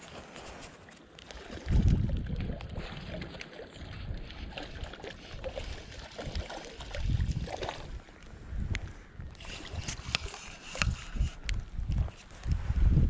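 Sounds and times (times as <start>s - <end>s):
reel clicking ticks: 9.4s - 11.6s.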